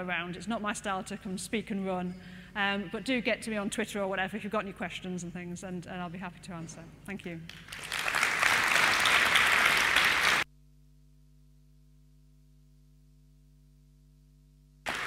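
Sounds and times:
faint steady hum: 0.0 - 8.0, 8.6 - 15.0
audience applauding: 7.5 - 10.5.

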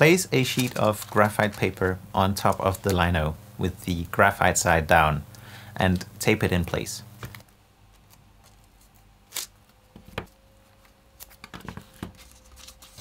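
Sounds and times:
tape crackling: 0.0 - 3.2, 7.2 - 13.0
paper rustling: 0.4 - 1.8, 10.7 - 13.0.

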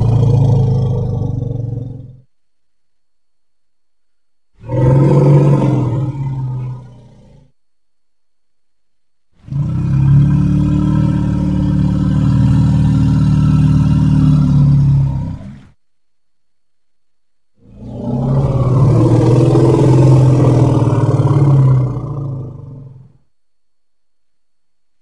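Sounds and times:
low animal roar: 0.0 - 2.3, 4.6 - 7.6, 9.4 - 15.8, 17.6 - 23.3.

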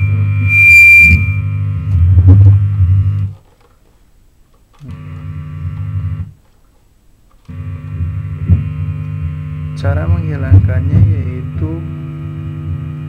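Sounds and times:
electrical hum low buzz: 0.0 - 13.0.

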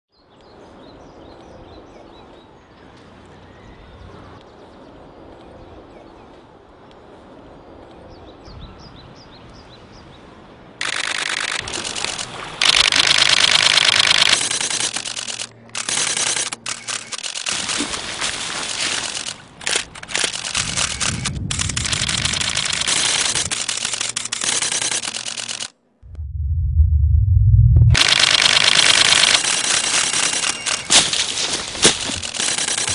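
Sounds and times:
camera shutters firing rapidly: 10.8 - 25.7, 28.0 - 32.9.

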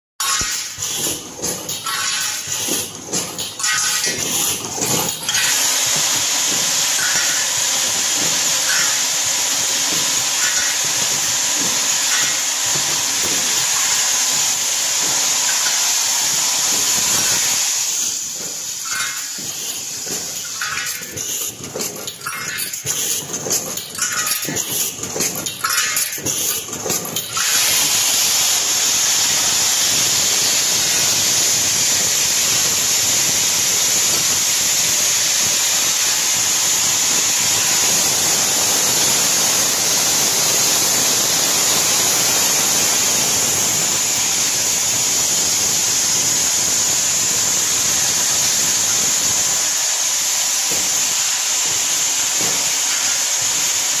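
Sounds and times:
loud steady hiss: 0.2 - 54.0
machine clicking and clacking: 0.2 - 54.0.

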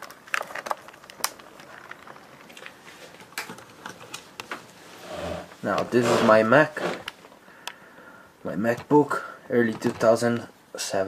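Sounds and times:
room hiss: 4.0 - 11.0.

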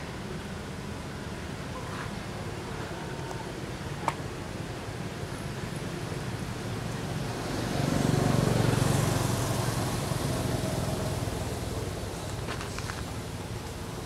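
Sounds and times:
vehicle passing by: 7.0 - 13.3.

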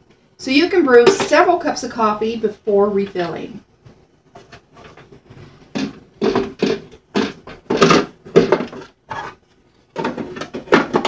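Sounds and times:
plastic clunks and rattles: 10.0 - 11.0.

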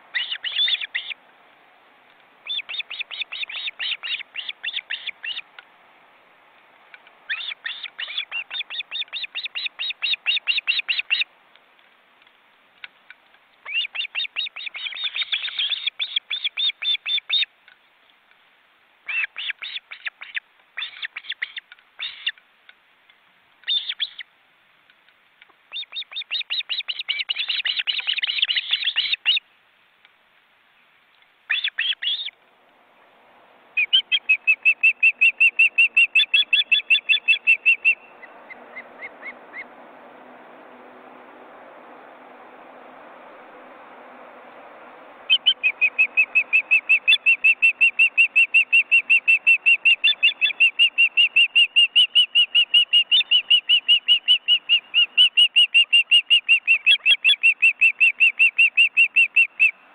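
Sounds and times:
ospreys chirping: 0.0 - 1.2, 2.4 - 5.5, 33.7 - 39.7, 45.2 - 59.8.

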